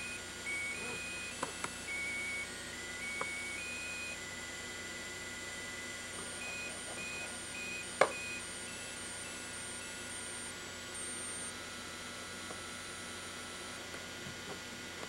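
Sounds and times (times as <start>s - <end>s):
electrical hum and hiss: 0.0s - 15.0s.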